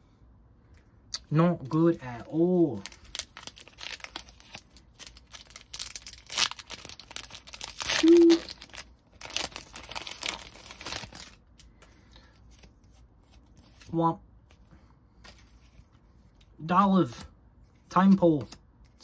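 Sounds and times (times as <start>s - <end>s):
foil wrapper crinkling and tearing: 2.3s - 11.6s.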